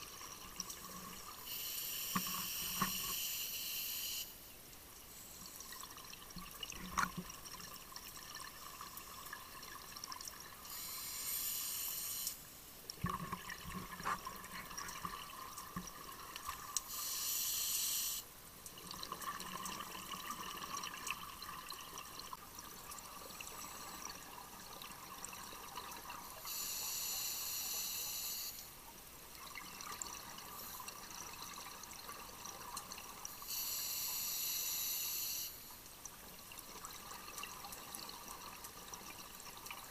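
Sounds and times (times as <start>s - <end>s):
regulator hiss: 1.4s - 4.4s, 10.6s - 12.5s, 16.8s - 18.3s, 26.4s - 28.8s, 33.3s - 35.8s.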